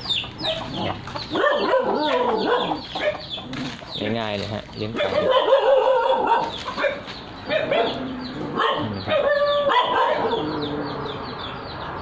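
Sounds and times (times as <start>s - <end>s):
animal yelping cries: 5.0s - 11.2s.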